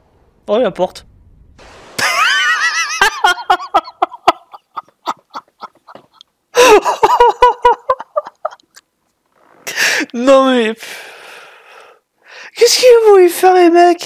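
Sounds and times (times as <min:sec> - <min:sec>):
man laughing: 0:02.0 - 0:08.7.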